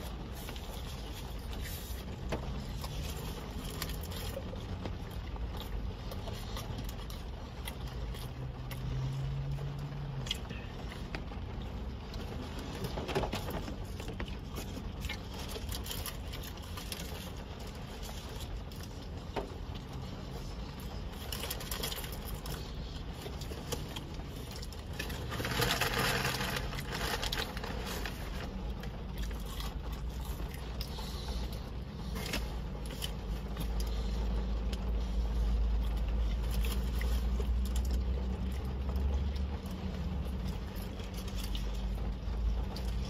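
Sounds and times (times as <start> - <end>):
car interior rumble: 0.0 - 43.0
plastic snack bag crinkling: 21.2 - 31.4.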